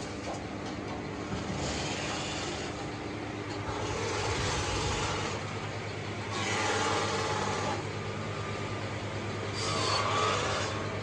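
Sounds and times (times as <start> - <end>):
sawmill machinery humming: 0.0 - 11.0
higher-pitched machine noise: 3.7 - 5.5, 6.2 - 8.5, 9.5 - 11.0.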